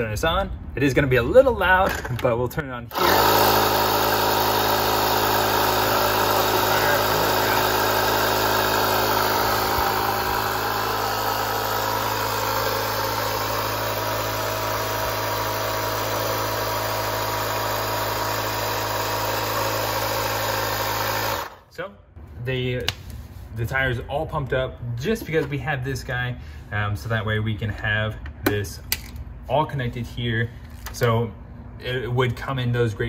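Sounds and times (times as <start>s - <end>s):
tyre inflator motor humming: 2.9s - 21.6s.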